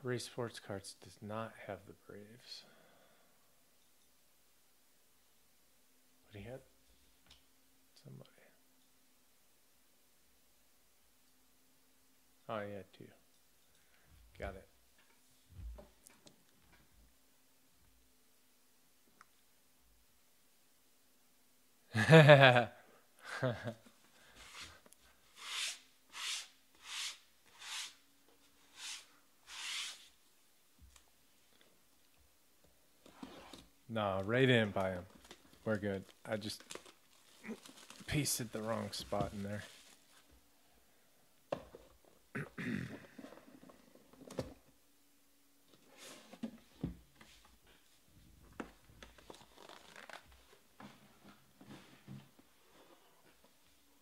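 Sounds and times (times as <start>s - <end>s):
plastic shrink wrap crinkling: 34.8s - 40.2s, 49.0s - 50.6s.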